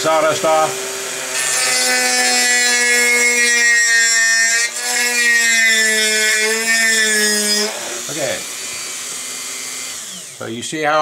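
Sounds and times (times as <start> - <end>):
rotary tool routing wood: 0.0 - 11.0
motor whine: 7.7 - 10.5.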